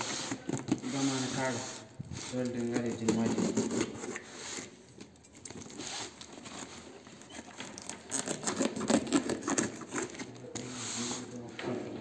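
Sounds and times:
packing tape crackles and clicks: 4.9s - 10.5s.

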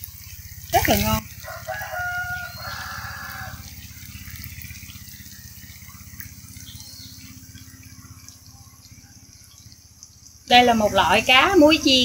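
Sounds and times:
low pulsing hum: 0.0s - 12.0s
oil sizzling in a frying pan: 0.0s - 12.0s.

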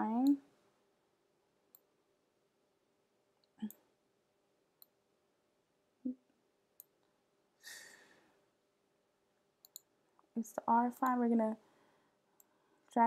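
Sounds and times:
computer mouse clicking: 9.6s - 9.9s.

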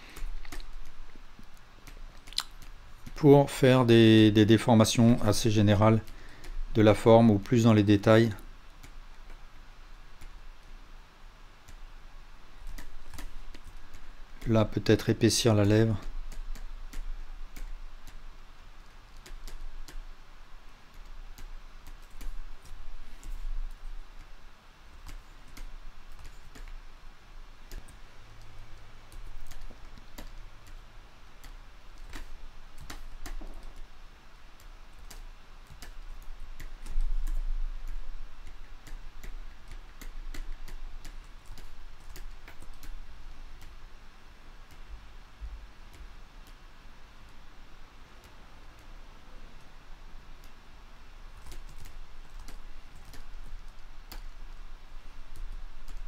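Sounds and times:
faint low hum: 0.0s - 56.0s
computer mouse and keyboard clicks: 0.1s - 3.2s, 12.6s - 14.6s, 15.9s - 18.2s, 19.2s - 20.1s, 20.9s - 24.3s, 25.0s - 26.8s, 27.7s - 30.8s, 31.4s - 33.9s, 34.6s - 43.0s, 51.4s - 54.4s.

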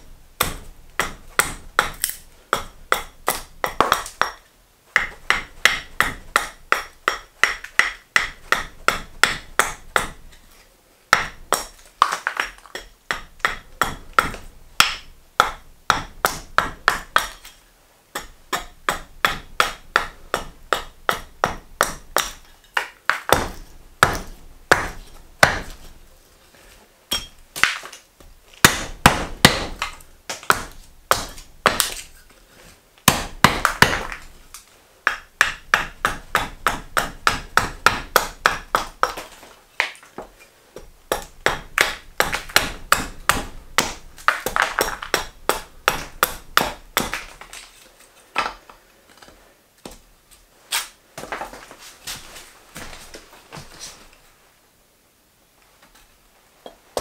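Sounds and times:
axe chopping wood on block: 0.4s - 4.4s, 5.0s - 10.4s, 11.1s - 25.9s, 27.1s - 28.0s, 28.6s - 32.2s, 33.0s - 34.4s, 35.1s - 40.1s, 40.8s - 47.7s.

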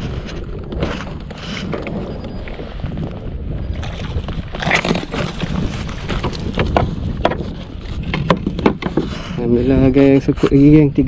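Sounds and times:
wind buffeting microphone: 0.0s - 11.0s
knocks and taps on kayak hull: 6.1s - 9.2s.

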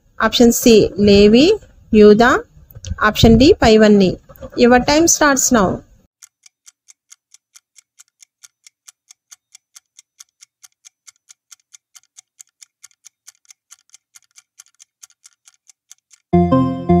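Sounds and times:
clock ticking: 6.2s - 16.3s.

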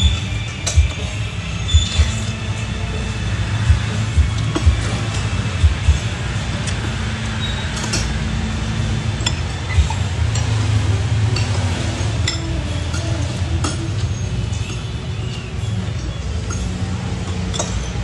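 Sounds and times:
cutlery clinking against a plate: 16.4s - 18.0s.

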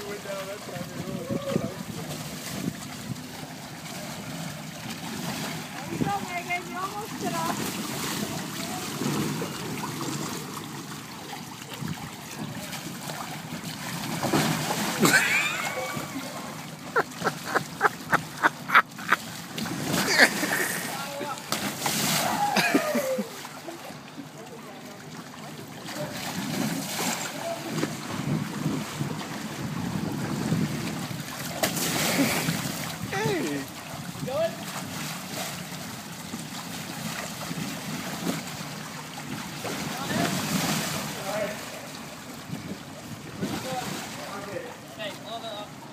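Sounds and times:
water sloshing and lapping: 0.0s - 45.9s
wind on microphone: 0.9s - 3.2s, 27.9s - 31.3s.

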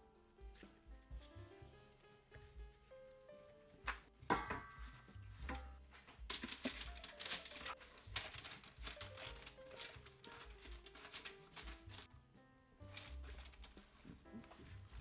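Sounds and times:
soft background music: 0.0s - 15.0s
parchment paper crinkling: 4.8s - 12.1s, 12.8s - 15.0s.

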